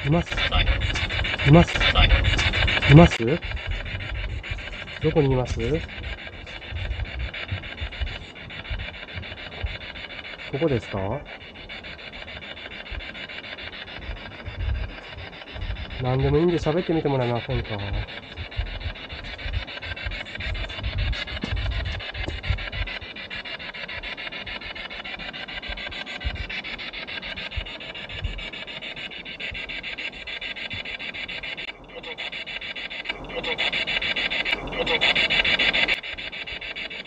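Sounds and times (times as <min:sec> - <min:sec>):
choppy rasping radio static: 0:00.0 - 0:37.0
low thumps: 0:14.0 - 0:23.0.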